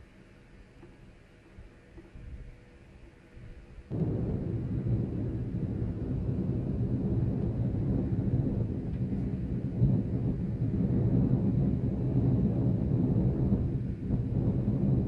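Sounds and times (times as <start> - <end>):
wind buffeting microphone: 3.5 - 15.0.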